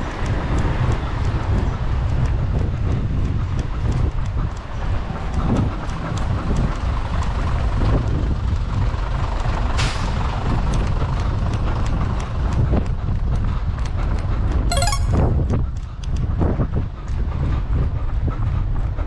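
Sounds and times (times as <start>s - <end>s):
wind on microphone: 0.0s - 4.5s.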